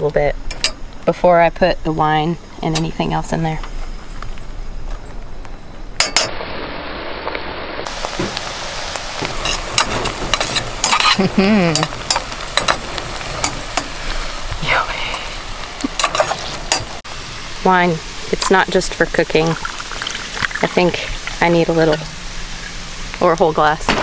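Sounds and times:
butter sizzling in a pan: 0:07.9 - 0:23.6
spatula scraping a pan: 0:09.4 - 0:11.2.

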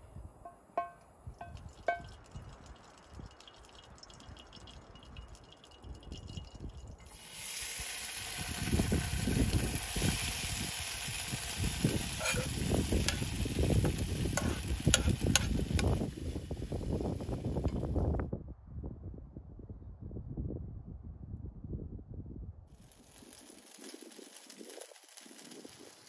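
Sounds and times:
noodles sizzling in a frying pan: 0:07.1 - 0:17.7, 0:22.8 - 0:26.0
pan and spatula clinks: 0:12.2 - 0:13.3.

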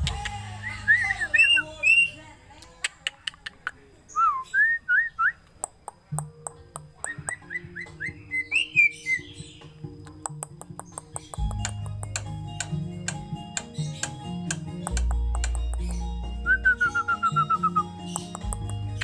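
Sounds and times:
bird whistling: 0:00.6 - 0:02.2, 0:04.1 - 0:05.5, 0:07.0 - 0:18.6
sharp bird clicks: 0:02.6 - 0:03.9, 0:05.4 - 0:08.1, 0:09.8 - 0:16.2, 0:18.0 - 0:19.0.

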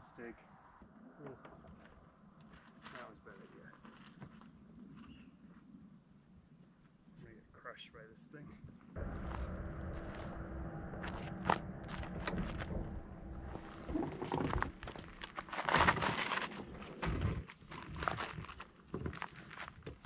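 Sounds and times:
footsteps in dirt and brush: 0:01.7 - 0:05.7, 0:13.4 - 0:19.8
low steady hum: 0:09.0 - 0:18.1
kayak knocking and scraping: 0:13.8 - 0:20.0.

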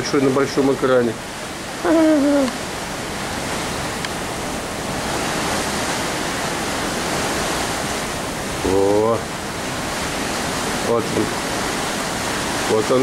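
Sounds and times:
sea rushing: 0:00.0 - 0:13.0.

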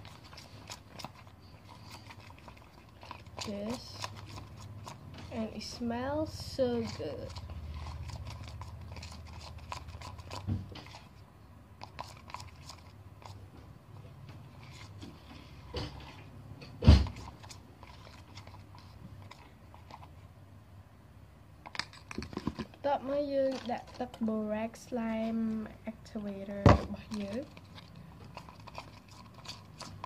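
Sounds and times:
foam squished with plastic spoon: 0:00.0 - 0:20.3, 0:21.7 - 0:30.0.

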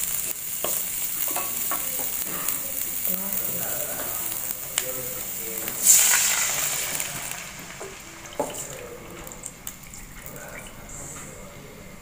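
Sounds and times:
water sizzling in hot wok: 0:00.0 - 0:11.0.

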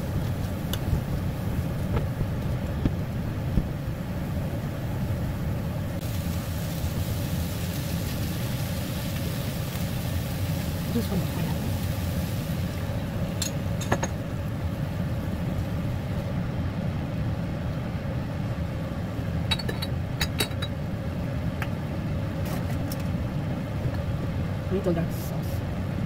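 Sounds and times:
kitchen fan humming: 0:00.0 - 0:26.0
glass bowl and bottle clinking: 0:19.5 - 0:20.7.

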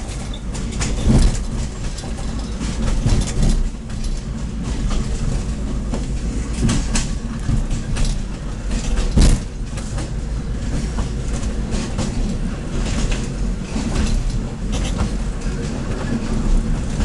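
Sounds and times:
clicks and knocks over rails: 0:00.0 - 0:17.0
train wheels rumbling: 0:00.0 - 0:17.0.

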